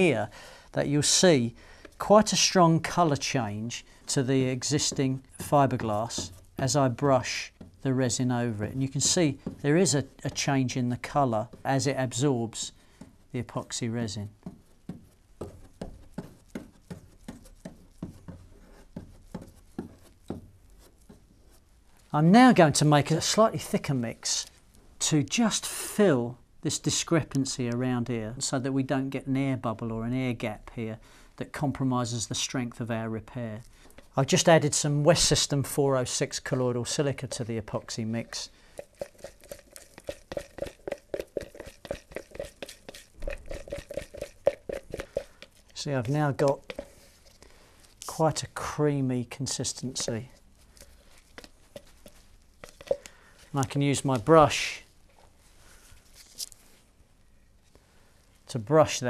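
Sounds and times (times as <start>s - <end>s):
brush dabbing resin: 1.0s - 24.7s, 33.4s - 56.8s
stick scraping plastic pot: 4.6s - 21.6s, 36.4s - 48.4s, 49.4s - 54.6s.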